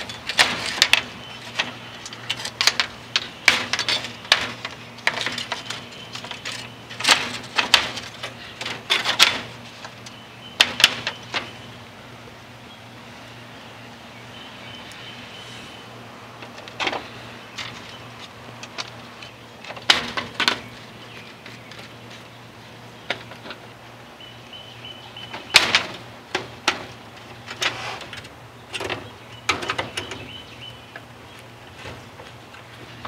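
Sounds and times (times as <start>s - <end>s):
metal door frame clicks and knocks: 0.0s - 9.6s, 19.7s - 20.7s, 25.3s - 26.9s.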